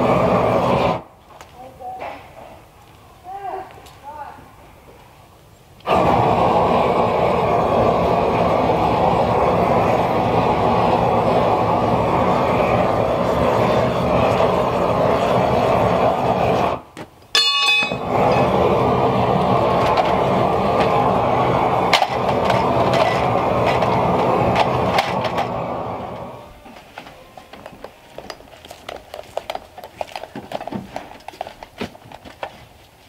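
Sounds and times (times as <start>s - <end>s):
corded power tool running: 5.9s - 16.8s, 17.9s - 30.5s
low hum: 17.4s - 29.1s.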